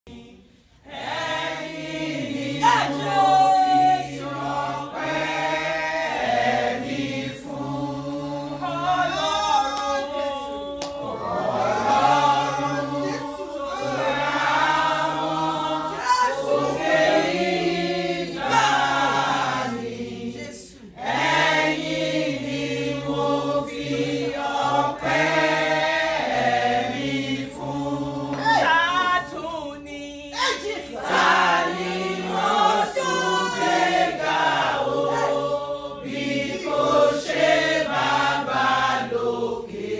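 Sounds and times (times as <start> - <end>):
women singing together: 0.1 - 39.9.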